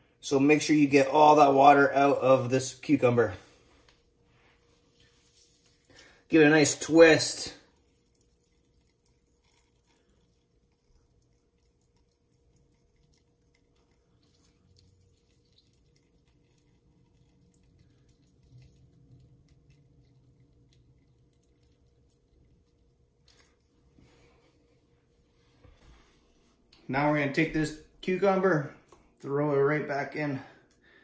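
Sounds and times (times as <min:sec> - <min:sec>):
wet cloth squishing: 0:03.2 - 0:26.8
water trickling: 0:05.0 - 0:23.7.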